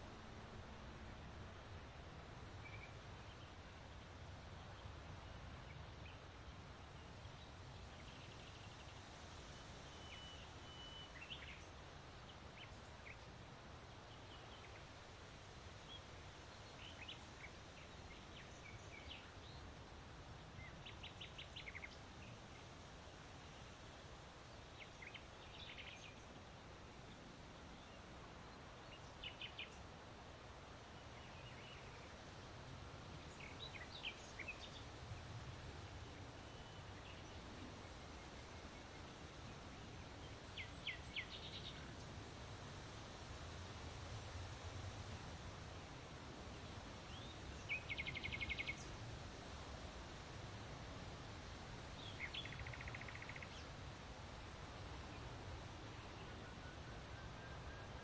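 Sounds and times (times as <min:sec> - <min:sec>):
small birds chirping: 0:20.6 - 0:22.7, 0:46.6 - 0:49.0, 0:51.9 - 0:53.8.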